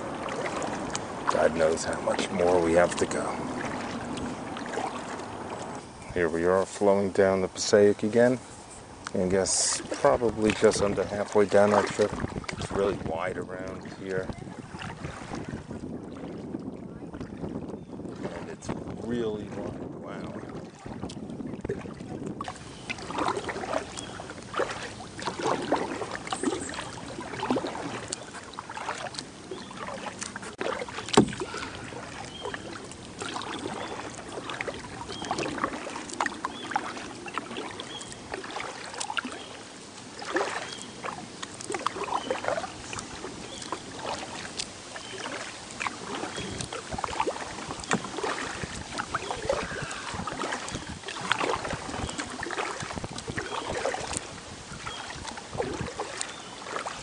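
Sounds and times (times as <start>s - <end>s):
water dripping: 0.0s - 5.8s, 22.2s - 56.9s
paddle strokes splashing: 0.0s - 57.0s
sharp knock on hull: 31.1s - 31.6s.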